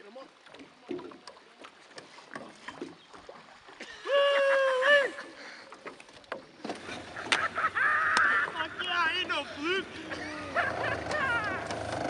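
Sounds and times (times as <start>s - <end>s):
man whooping: 4.0s - 5.2s, 10.2s - 11.7s.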